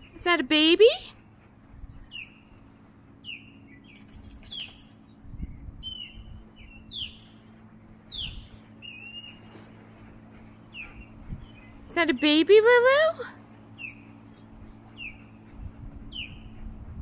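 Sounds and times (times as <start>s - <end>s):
birds chirping: 3.2s - 5.0s, 5.8s - 9.7s, 10.4s - 12.7s, 14.9s - 15.4s.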